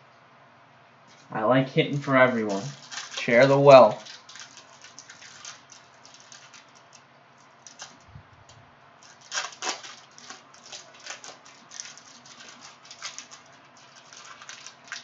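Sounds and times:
wrapper crinkling and tearing: 2.4s - 8.1s, 9.0s - 15.0s.

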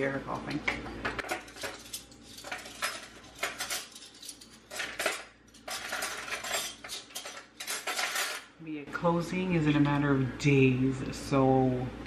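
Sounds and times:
dishes and cutlery clinking: 0.6s - 8.5s.

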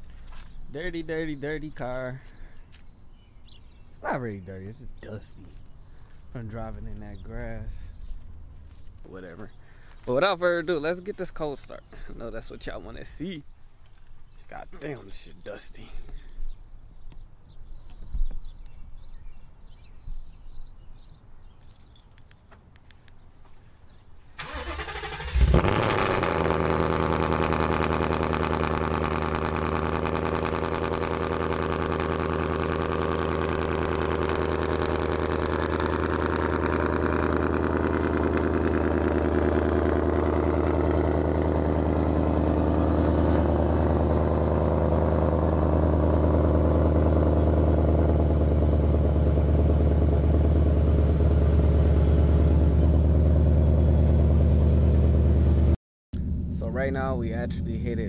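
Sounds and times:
car engine starting and idling: 24.4s - 58.0s.

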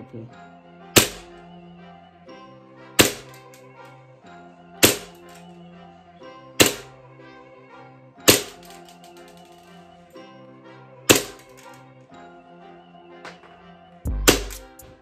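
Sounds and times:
background music: 0.0s - 15.0s
pistol shots cracking: 1.0s - 1.3s, 3.0s - 3.6s, 4.8s - 5.3s, 6.6s - 6.9s, 8.3s - 8.8s, 11.1s - 11.7s.

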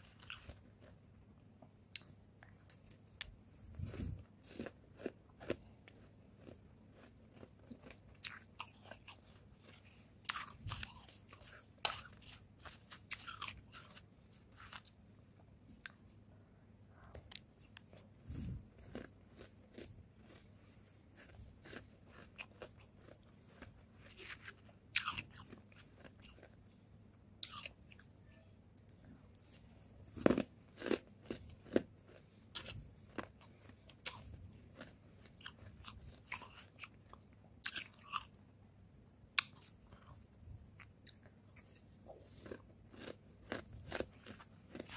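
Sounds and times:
frost crunching when chewed: 0.0s - 1.1s, 1.9s - 15.0s, 17.2s - 26.6s, 30.1s - 38.3s, 40.8s - 44.9s.

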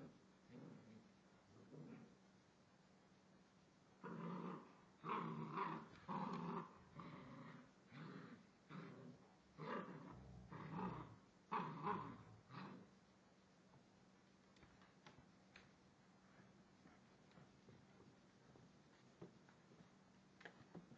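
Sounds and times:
puppy growling: 0.0s - 2.2s, 4.0s - 12.9s.

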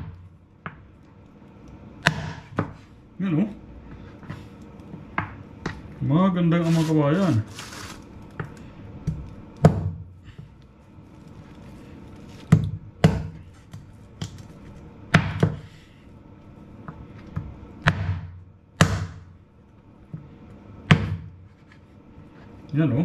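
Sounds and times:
cleaver chopping through bone: 2.0s - 2.5s, 17.8s - 19.3s.

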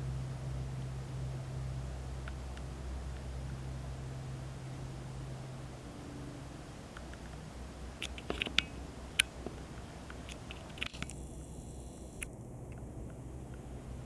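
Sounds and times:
low steady hum: 0.0s - 14.0s
sharp clicks and ticks: 8.0s - 11.3s.

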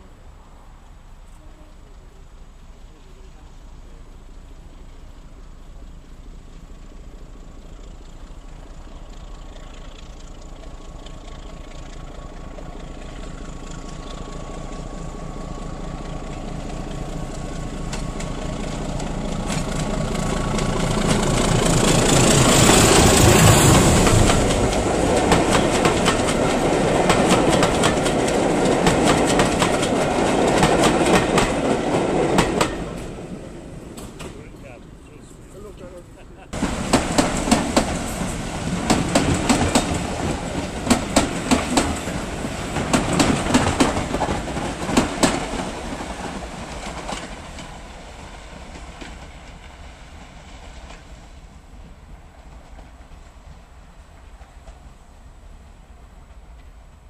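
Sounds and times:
diesel locomotive engine: 0.0s - 57.0s
train wheels clattering over rail joints: 15.6s - 34.5s, 36.6s - 49.9s.

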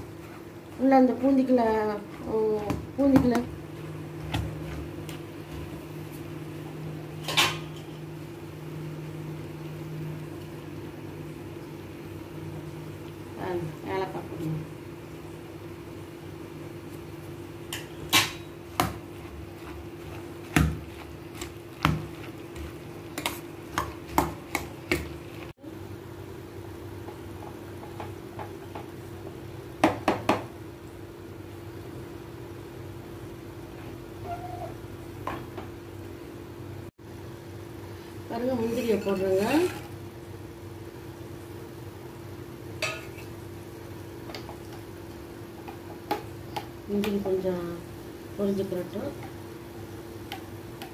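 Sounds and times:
steel ladle clanking on bowl: 42.8s - 43.3s.

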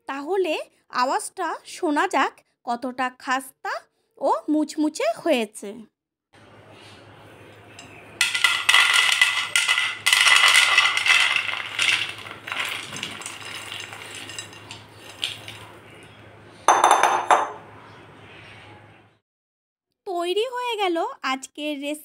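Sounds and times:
crackers clattering onto a plate: 7.8s - 15.8s.

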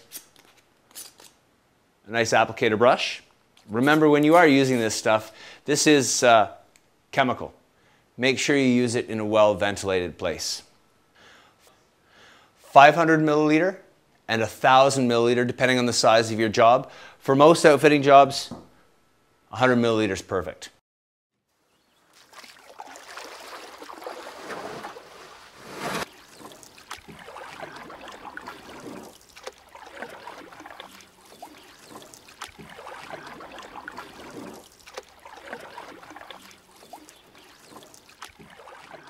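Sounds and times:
water splashing and trickling: 21.8s - 39.0s.

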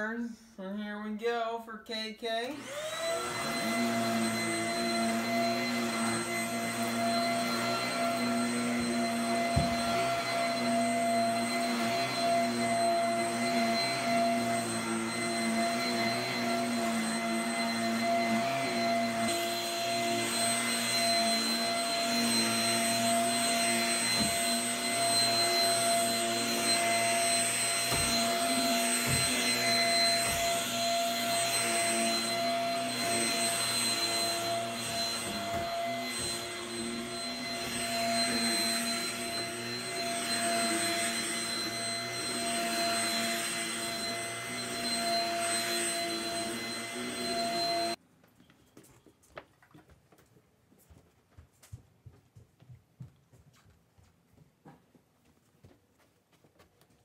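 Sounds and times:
vacuum cleaner running on carpet: 2.4s - 48.0s.

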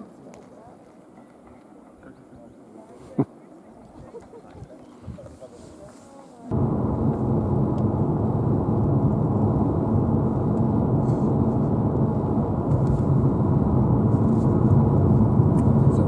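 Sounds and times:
car engine and road rumble: 6.5s - 16.0s.

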